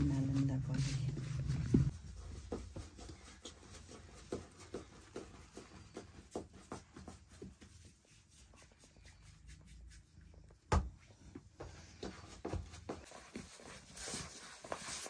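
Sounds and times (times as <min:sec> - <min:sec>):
soft pats on bread dough: 0:01.6 - 0:13.6.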